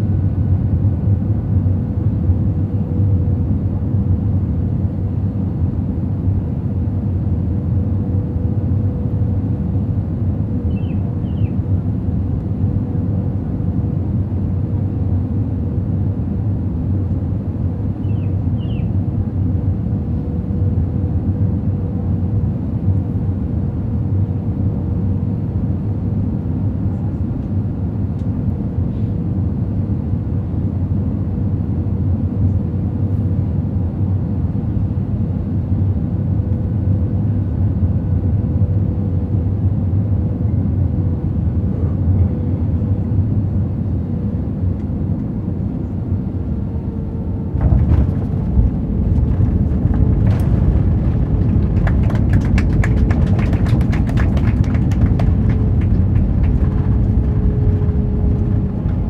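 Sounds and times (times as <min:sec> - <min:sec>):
jet engine drone: 0:27.6 - 0:59.0
runway rumble with rattling: 0:39.8 - 0:59.0.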